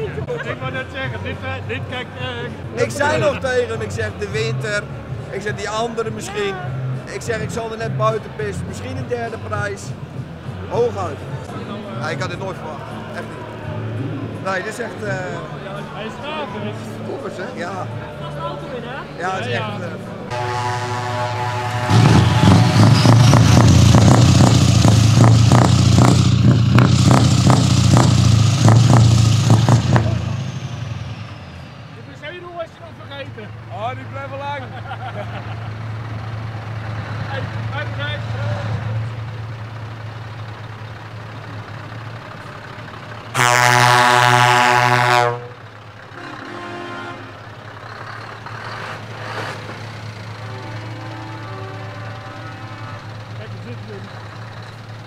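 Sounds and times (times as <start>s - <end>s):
truck engine rumbling: 0.0s - 55.0s
truck air horn blast: 20.3s - 24.9s, 43.3s - 47.6s, 50.3s - 53.4s.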